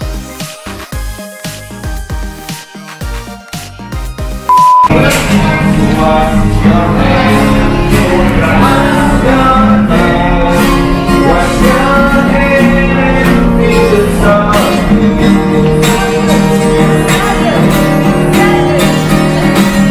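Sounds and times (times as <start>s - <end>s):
acoustic guitar: 0.0s - 19.9s
person singing: 4.9s - 19.9s.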